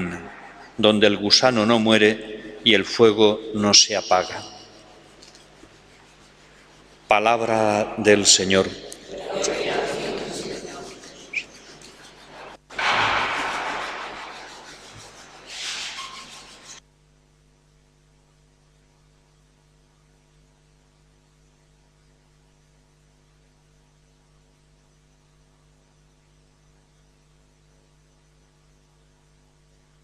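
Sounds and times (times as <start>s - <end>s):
faint mains hum: 0.0s - 30.0s
loud noisy sound: 7.6s - 16.1s.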